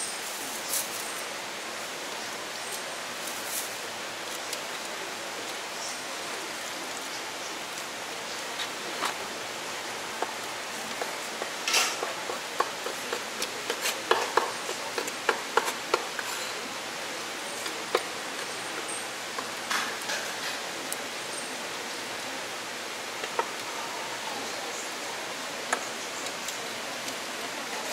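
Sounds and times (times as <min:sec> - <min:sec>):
steady hiss: 0:00.0 - 0:27.9
cleaver chopping on wooden board: 0:12.2 - 0:16.1.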